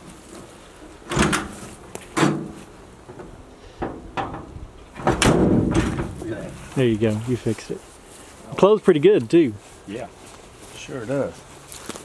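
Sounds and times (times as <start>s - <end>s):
door clattering shut and latching: 1.1s - 1.6s, 2.2s - 2.5s, 3.9s - 6.2s
truck door clunks: 3.9s - 6.2s.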